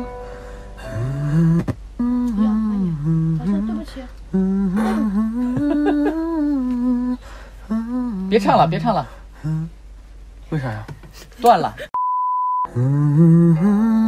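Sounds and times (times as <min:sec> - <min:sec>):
man humming: 0:00.0 - 0:08.4, 0:09.4 - 0:09.8, 0:12.7 - 0:14.0
breaths: 0:00.2 - 0:00.9, 0:07.2 - 0:07.7.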